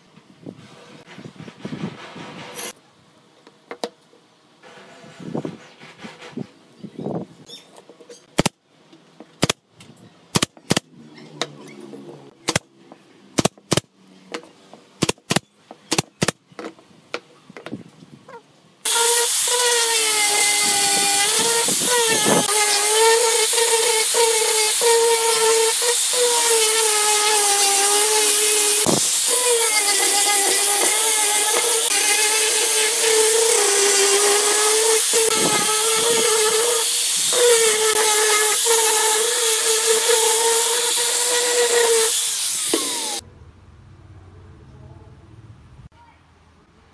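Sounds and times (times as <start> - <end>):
angle grinder sanding wood: 18.9 - 43.2.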